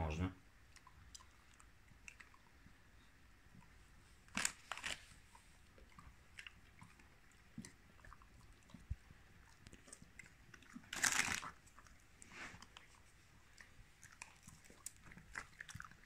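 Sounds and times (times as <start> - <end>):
dog chewing treat: 4.4 - 16.0.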